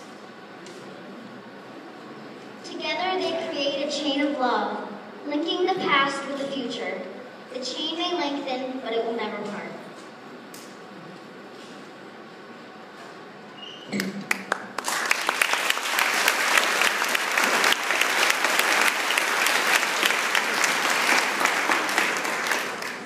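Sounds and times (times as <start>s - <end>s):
audience applauding: 14.0s - 23.0s.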